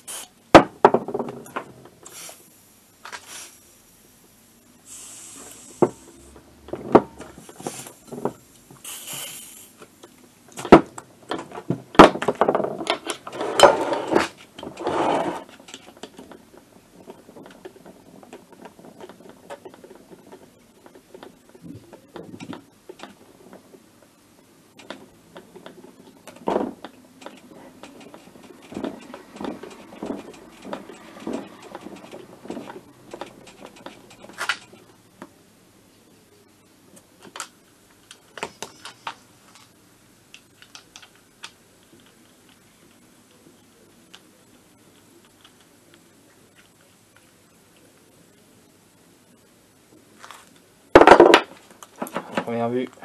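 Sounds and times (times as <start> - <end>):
short hisses: 0.0 - 0.4, 2.0 - 2.5, 3.2 - 3.7, 4.9 - 6.3, 8.8 - 9.8
metal casing knocking and scraping: 24.8 - 34.9.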